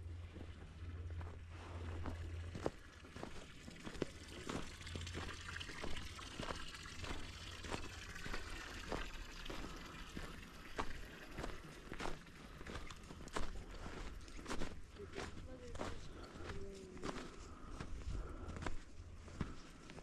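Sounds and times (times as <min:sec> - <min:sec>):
footsteps crunching on snow: 0:00.2 - 0:20.0.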